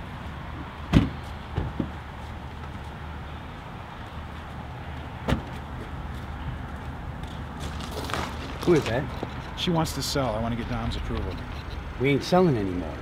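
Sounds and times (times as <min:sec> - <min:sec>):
car door slamming: 0:05.2 - 0:05.5
steady low rumble: 0:08.6 - 0:13.0.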